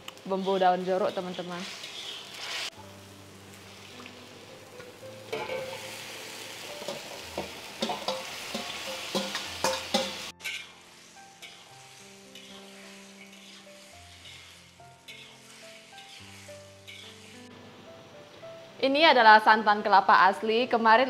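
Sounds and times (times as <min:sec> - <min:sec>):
sizzling in a wok: 0:00.0 - 0:20.8
metal spatula clinking on bowl: 0:07.8 - 0:10.7.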